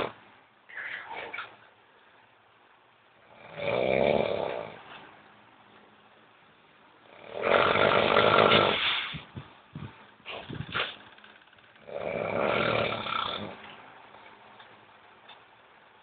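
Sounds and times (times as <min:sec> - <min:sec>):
woman snoring: 0:03.3 - 0:04.8, 0:07.1 - 0:09.1, 0:11.8 - 0:13.6.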